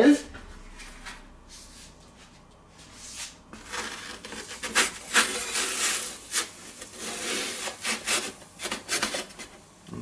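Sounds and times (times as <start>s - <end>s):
metal peels scraping on stone: 3.6s - 9.5s.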